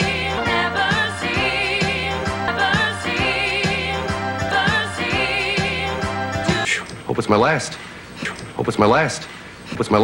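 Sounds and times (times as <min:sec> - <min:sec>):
voices singing with vibrato: 0:00.0 - 0:06.8.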